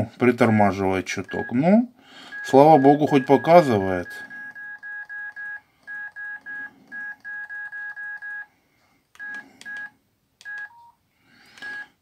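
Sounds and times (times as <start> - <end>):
phone key beeps: 1.2 - 1.6, 2.3 - 8.5, 9.2 - 11.0, 11.6 - 12.0.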